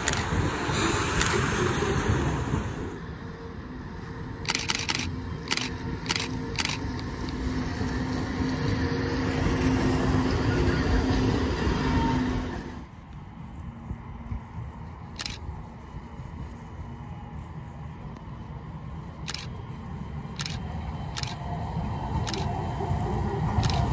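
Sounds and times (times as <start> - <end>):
sharp clicks: 0.0 - 0.3, 4.4 - 7.4, 15.2 - 15.4, 19.2 - 19.6, 20.4 - 21.4, 22.2 - 22.5, 23.6 - 23.9
tram motor hum: 0.0 - 23.9
wheel-on-rail rumble: 0.0 - 23.9.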